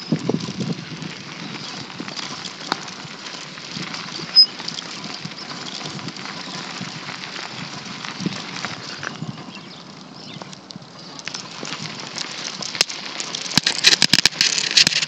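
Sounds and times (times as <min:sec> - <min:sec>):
bicycle rattling over pavement: 0:00.0 - 0:15.0
brief high squeak: 0:04.3 - 0:04.5.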